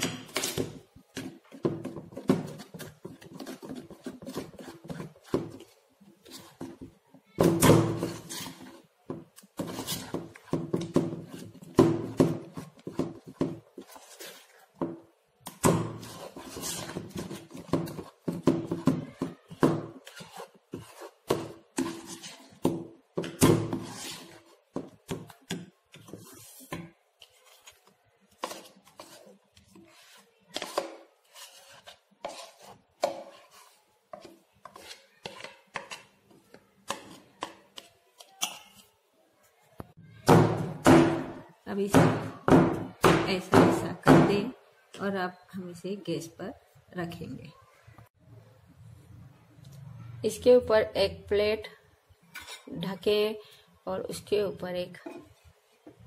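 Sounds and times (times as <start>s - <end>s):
whisk beating batter in bowl: 1.4s - 6.8s, 15.9s - 22.7s, 23.7s - 36.2s.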